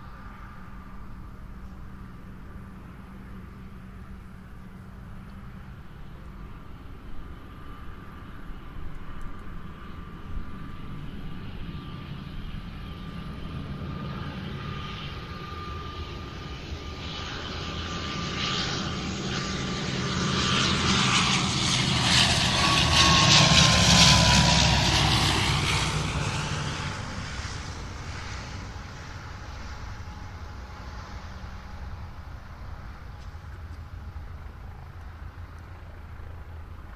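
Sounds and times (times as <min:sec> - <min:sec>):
aircraft whining tone: 0:00.0 - 0:36.9
airliner engine roar: 0:00.0 - 0:36.9.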